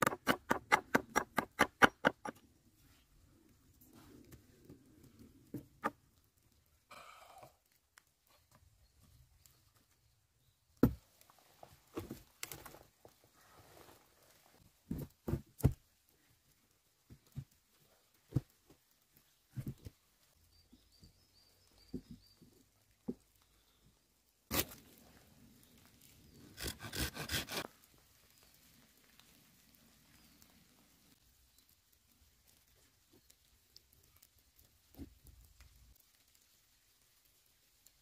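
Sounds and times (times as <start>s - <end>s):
branches crackling: 24.5s - 38.0s.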